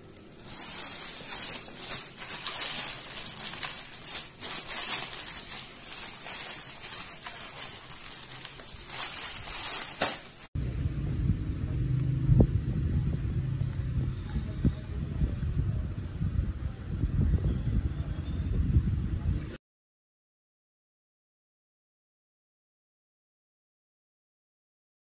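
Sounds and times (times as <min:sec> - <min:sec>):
plastic mailer bag crinkling: 0:00.0 - 0:10.5
steady low rumble: 0:10.6 - 0:19.6.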